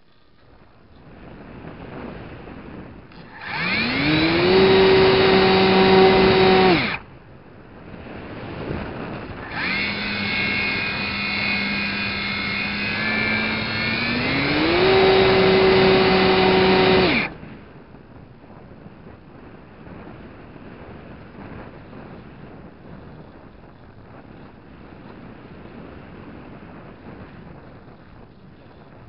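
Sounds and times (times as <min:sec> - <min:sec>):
wind rushing over microphone: 0:00.5 - 0:29.0
model plane motor whine: 0:03.1 - 0:07.1, 0:08.7 - 0:17.4, 0:21.4 - 0:29.0.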